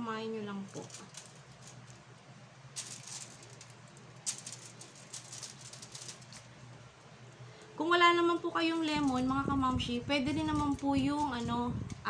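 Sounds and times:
aluminium foil crinkling: 0:00.5 - 0:02.1, 0:02.7 - 0:06.6, 0:08.5 - 0:12.0.

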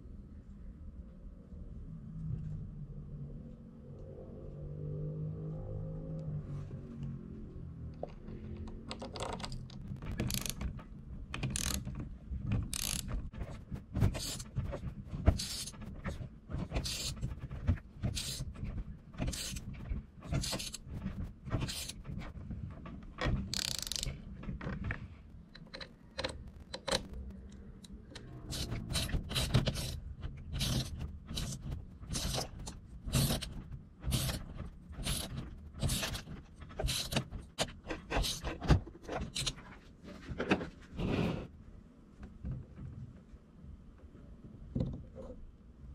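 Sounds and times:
hex driver clicking and scraping: 0:09.0 - 0:10.7, 0:11.4 - 0:11.9, 0:12.7 - 0:13.1, 0:23.5 - 0:24.2.

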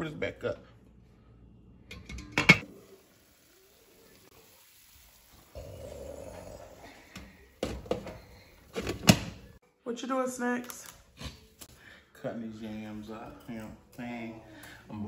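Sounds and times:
pot simmering hiss: 0:01.0 - 0:09.6.

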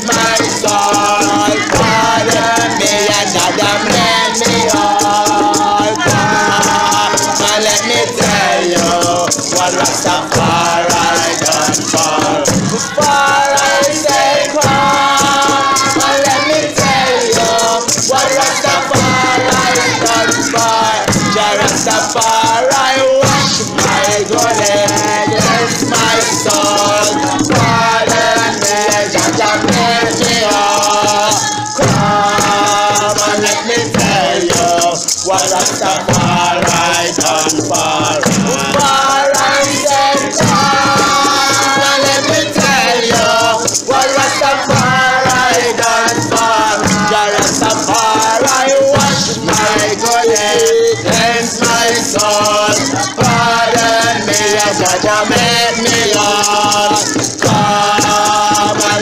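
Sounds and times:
group of voices chanting: 0:00.0 - 0:59.0
hand drums: 0:00.0 - 0:59.0
shaken rattle: 0:00.0 - 0:59.0.

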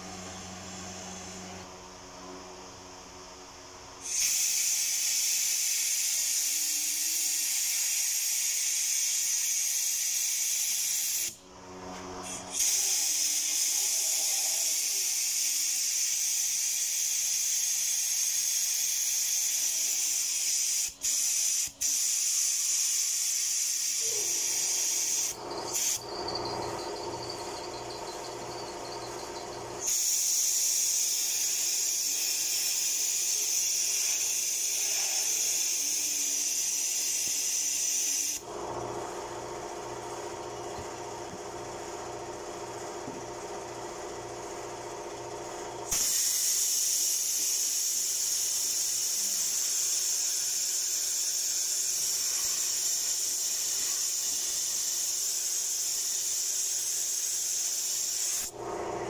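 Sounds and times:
compressed air hissing: 0:04.0 - 0:11.4, 0:12.2 - 0:38.5, 0:45.9 - 0:58.7.

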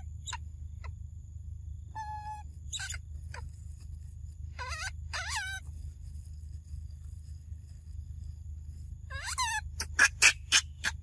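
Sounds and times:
steady low rumble: 0:00.0 - 0:11.0
quavering animal calls: 0:01.9 - 0:03.6, 0:04.4 - 0:06.0, 0:09.0 - 0:11.0
falling chirps: 0:01.9 - 0:03.7.

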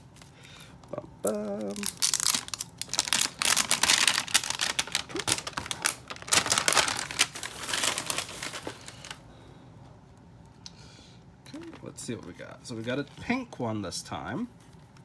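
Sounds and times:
plastic packaging crinkling and tearing: 0:01.2 - 0:09.2.

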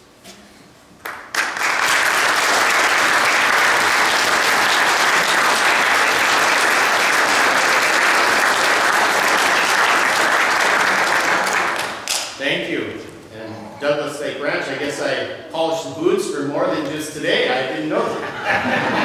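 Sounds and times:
congregation applauding: 0:01.0 - 0:12.4.

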